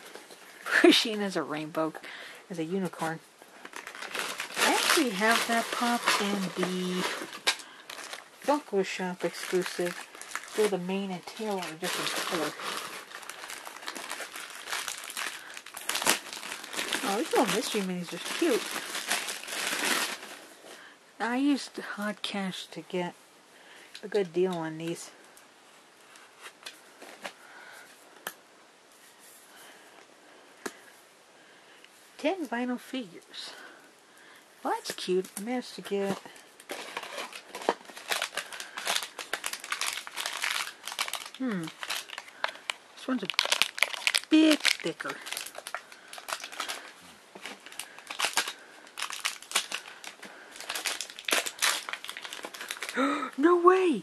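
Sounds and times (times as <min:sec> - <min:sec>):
plastic wrapper crinkling: 0:02.5 - 0:20.8, 0:34.6 - 0:53.4
soft rustles: 0:02.8 - 0:20.9, 0:24.8 - 0:31.1.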